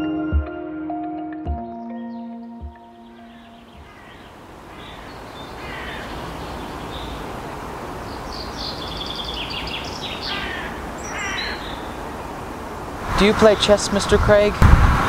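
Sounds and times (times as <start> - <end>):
bird chirps: 1.8 - 7.2, 8.1 - 12.0
birds calling harshly: 3.0 - 12.4.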